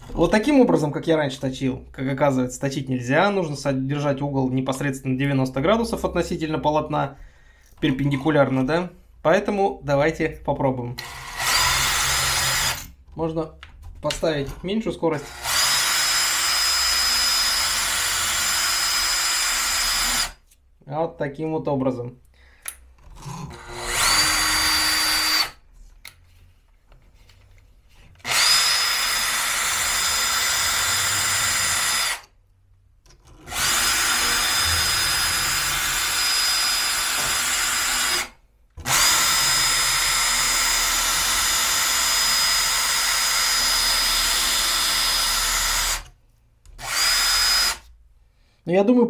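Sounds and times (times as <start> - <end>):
cordless drill motor whine: 11.0 - 12.8, 15.2 - 20.3, 23.5 - 25.6, 28.2 - 32.2, 33.4 - 46.0, 46.8 - 47.8.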